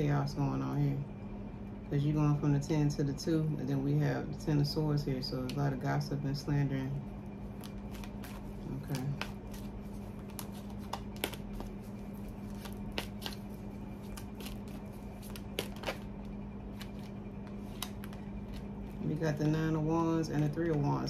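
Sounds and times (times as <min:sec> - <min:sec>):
steady low hum: 0:00.0 - 0:21.0
cards being shuffled: 0:07.5 - 0:19.6.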